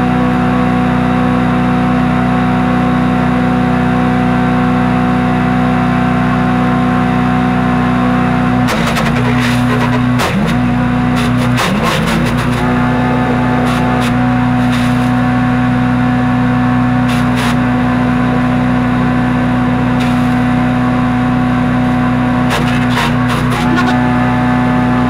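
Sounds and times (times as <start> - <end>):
wood chipper engine running: 0.0 - 25.0
wood cracking in chipper: 8.6 - 18.6, 19.8 - 24.3.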